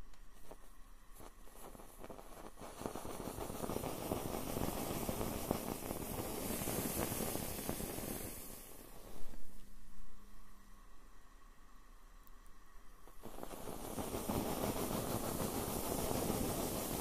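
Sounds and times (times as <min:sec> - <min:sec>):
marshmallows burning and crackling: 0:00.1 - 0:09.7, 0:13.0 - 0:17.0
fire hissing: 0:00.3 - 0:09.7, 0:13.0 - 0:17.0.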